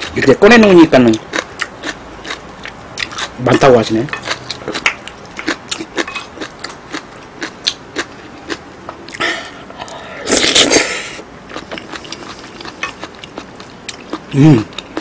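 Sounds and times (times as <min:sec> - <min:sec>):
loud slurp: 0:09.8 - 0:11.2.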